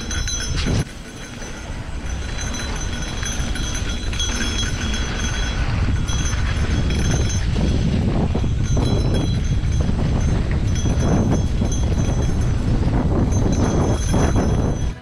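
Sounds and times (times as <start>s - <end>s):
bike tyres rumbling on dirt trail: 0.0s - 15.0s
wind buffeting microphone: 0.0s - 15.0s.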